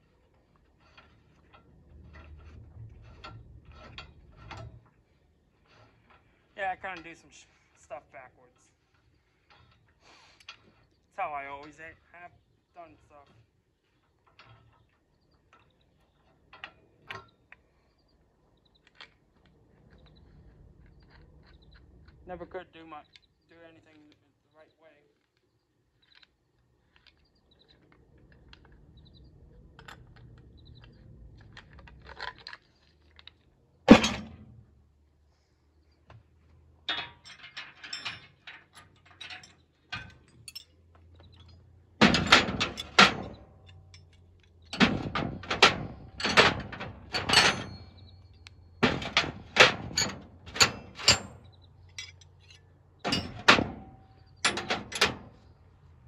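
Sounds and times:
metal tools clicking and clanking: 0:00.1 - 0:12.0, 0:12.8 - 0:17.6, 0:36.7 - 0:56.0.

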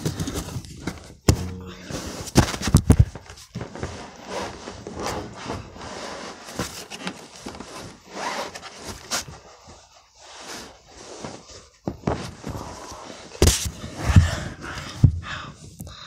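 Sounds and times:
sharp knocks: 0:01.3 - 0:02.0.

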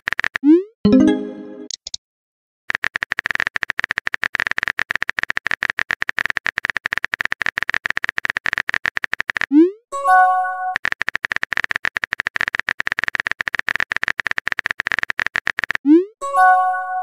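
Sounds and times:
rapid keyboard clicking: 0:00.0 - 0:00.4, 0:02.7 - 0:09.5, 0:10.8 - 0:15.9.

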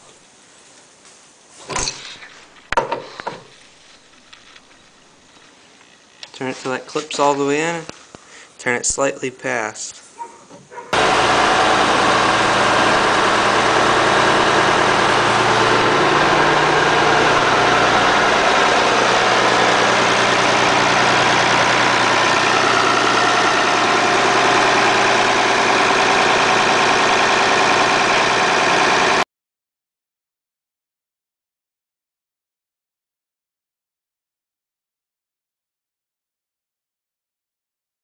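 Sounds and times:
hydraulic loader bucket: 0:10.6 - 0:29.2
tractor engine running: 0:10.9 - 0:29.2.

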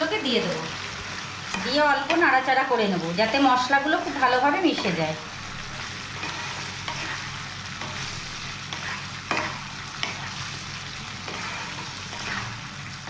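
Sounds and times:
sauce sizzling in a pan: 0:00.0 - 0:13.0
spatula scraping a pan: 0:04.0 - 0:12.8.

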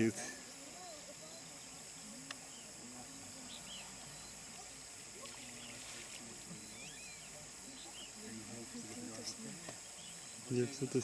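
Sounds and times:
insects droning: 0:00.0 - 0:11.0
murmur of distant voices: 0:00.0 - 0:11.0
faint bird chirps: 0:00.1 - 0:11.0.

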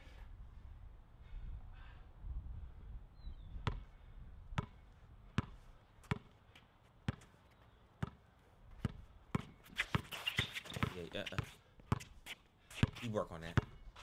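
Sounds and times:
basketball bouncing on hard court: 0:03.6 - 0:03.8, 0:04.6 - 0:04.8, 0:05.4 - 0:06.3, 0:07.1 - 0:07.3, 0:08.0 - 0:08.2, 0:08.8 - 0:13.8.

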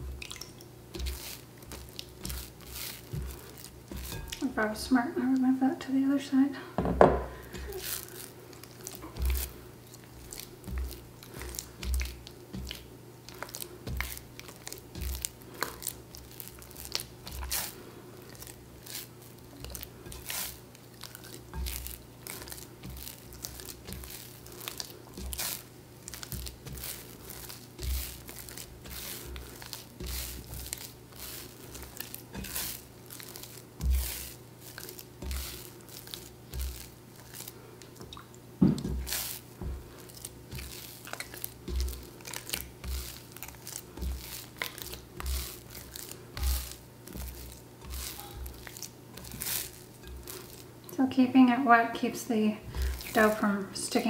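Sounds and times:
wet dough squelching: 0:00.0 - 0:06.5, 0:07.3 - 0:54.0
dough thumping against bowl: 0:06.8 - 0:07.7, 0:38.1 - 0:39.9.

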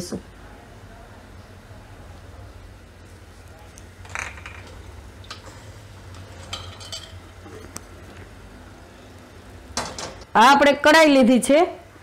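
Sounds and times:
steel ladle clinking in a pot: 0:06.2 - 0:07.4.

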